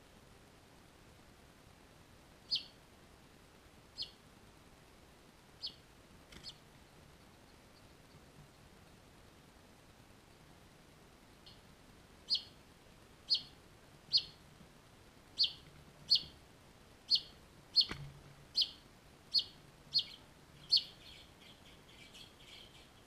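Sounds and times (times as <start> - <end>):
finch chirping: 2.5 - 2.8, 4.0 - 4.2, 5.6 - 5.8, 12.2 - 12.6, 13.2 - 14.4, 15.4 - 16.4, 17.1 - 23.0
soft bird twittering: 2.5 - 2.8, 4.0 - 4.2, 5.6 - 5.8, 12.3 - 12.6, 13.2 - 14.4, 15.4 - 16.4, 17.1 - 23.0.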